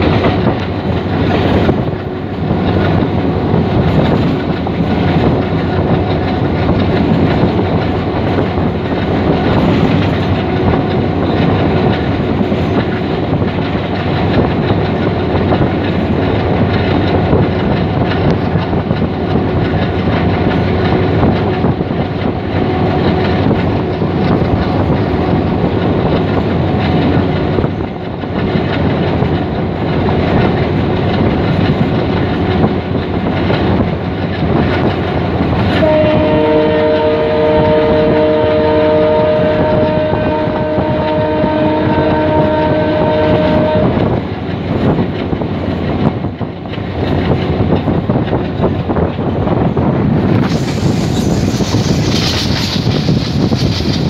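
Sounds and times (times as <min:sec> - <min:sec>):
wind rushing: 0:00.0 - 0:36.3, 0:39.0 - 0:54.0
train rumble and wheel clatter: 0:00.0 - 0:54.0
train horn blast: 0:35.7 - 0:44.1.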